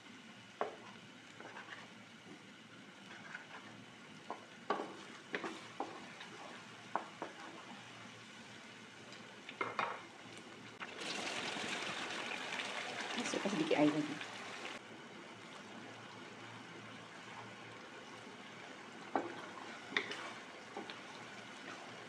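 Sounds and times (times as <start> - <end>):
faint sizzle: 0.0 - 22.0
wooden spatula scraping a wok: 0.6 - 2.0, 3.0 - 7.9, 19.0 - 22.0
water pouring: 10.8 - 14.8.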